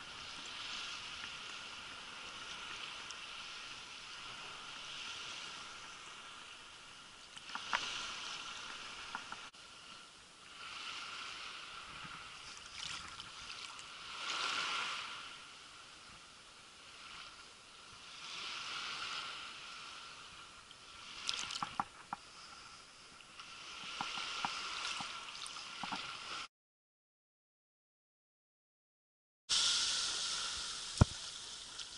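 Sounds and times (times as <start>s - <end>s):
sea water lapping: 0.0s - 15.5s, 16.8s - 26.5s
small splashes and drips: 12.5s - 13.9s, 21.2s - 21.9s.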